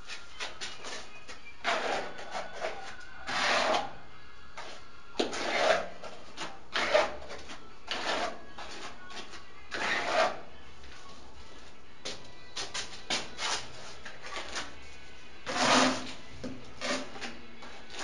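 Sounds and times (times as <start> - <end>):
spatula scraping mortar on wall: 0.4 - 4.0, 4.6 - 10.5, 12.6 - 14.8, 15.4 - 18.0.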